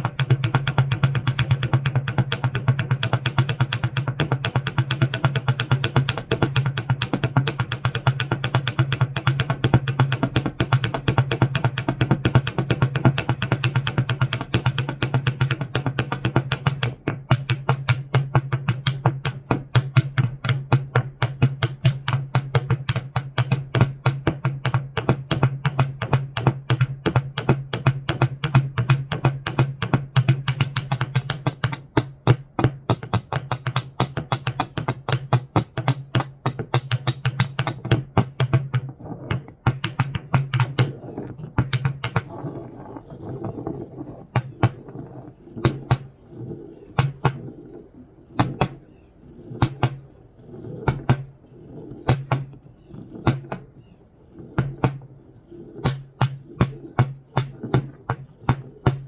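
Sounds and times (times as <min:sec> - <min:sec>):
steady low hum: 0:38.8 - 0:59.0.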